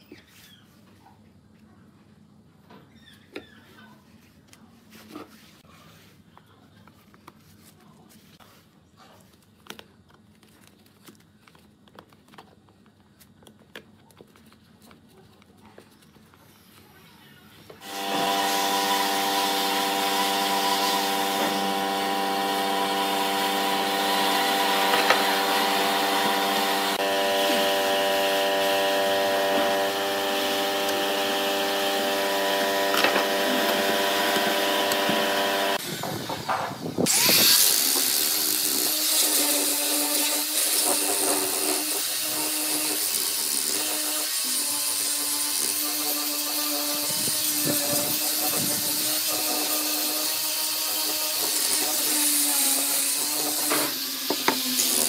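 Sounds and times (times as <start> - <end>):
angle grinder sanding wood: 17.8 - 55.0.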